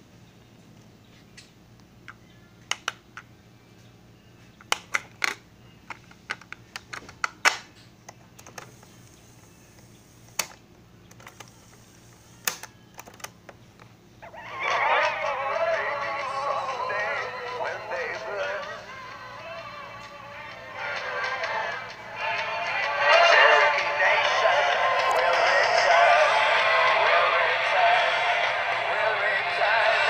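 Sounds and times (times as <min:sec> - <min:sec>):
cassette tape plastic clicks: 0:04.6 - 0:08.9, 0:10.3 - 0:11.8, 0:12.4 - 0:13.9
music from tape: 0:14.2 - 0:30.0.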